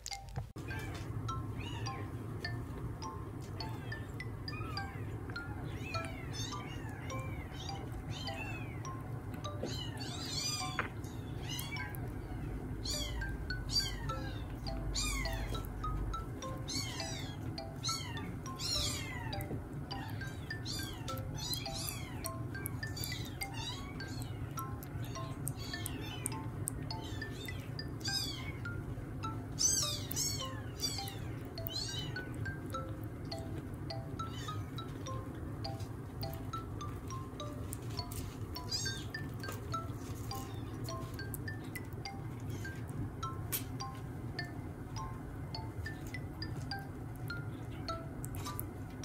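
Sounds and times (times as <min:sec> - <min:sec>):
chime-like background music: 0:01.3 - 0:48.6
kittens mewing: 0:03.6 - 0:32.8, 0:34.0 - 0:35.1, 0:38.1 - 0:39.6
kitten mewing: 0:11.4 - 0:15.6.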